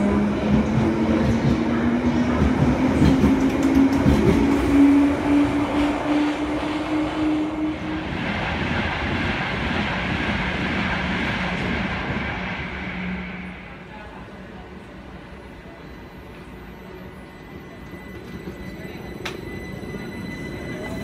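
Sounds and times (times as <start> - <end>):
train wheel rumble: 0.0 - 14.7.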